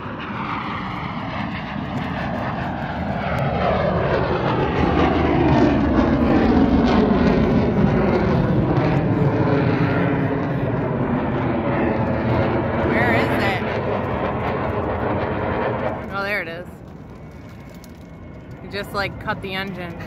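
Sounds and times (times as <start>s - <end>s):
jet flying past: 0.0s - 20.0s.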